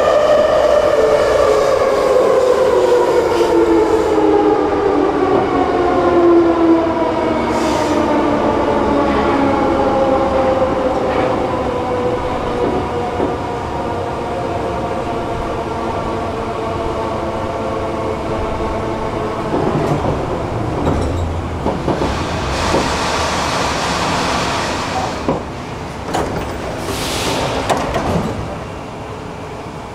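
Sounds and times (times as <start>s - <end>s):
train running rumble: 10.8s - 29.9s
air hiss: 26.8s - 27.7s.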